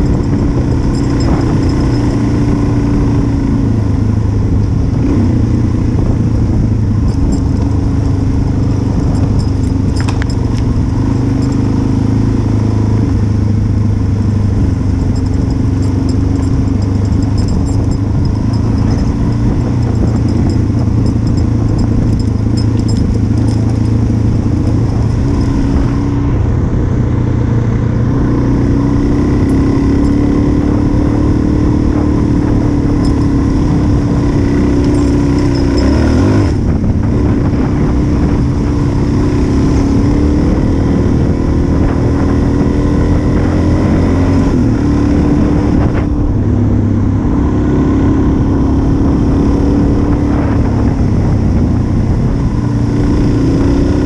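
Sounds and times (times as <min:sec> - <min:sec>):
motorcycle engine running: 0:00.0 - 0:54.0
tyres on gravel road: 0:00.0 - 0:54.0
wind rush over microphone: 0:00.0 - 0:54.0.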